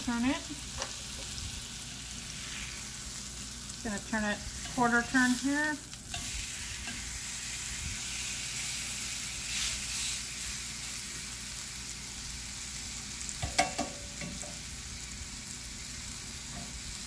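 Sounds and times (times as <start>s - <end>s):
chicken sizzling in a grill pan: 0.0s - 17.0s
metal tongs clattering on pan: 13.4s - 14.6s.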